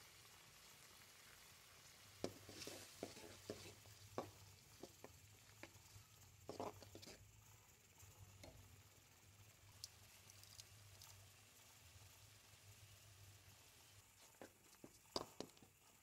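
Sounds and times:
spatula scraping steel pan: 2.3s - 3.9s.

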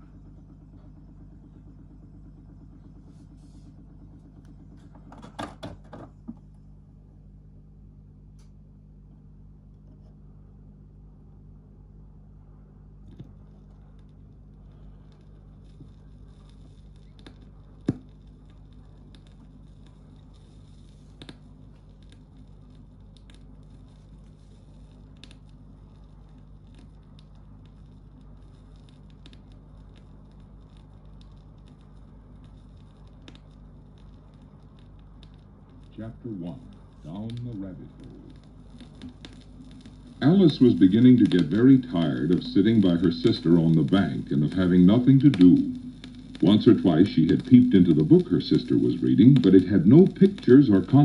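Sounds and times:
record player hum: 0.0s - 51.0s
vinyl clicks and crackle: 13.0s - 51.0s.

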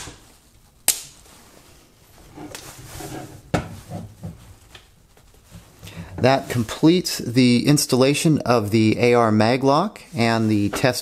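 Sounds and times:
faint handling noise: 0.2s - 7.3s, 10.0s - 11.0s.

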